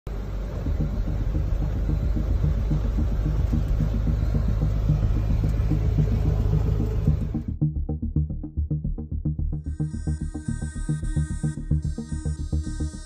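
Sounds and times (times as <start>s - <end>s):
vehicle rumbling through water: 0.1s - 7.6s.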